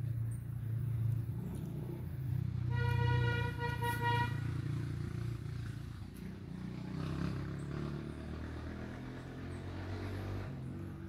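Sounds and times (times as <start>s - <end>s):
vehicle engine rumbling: 0.0s - 11.0s.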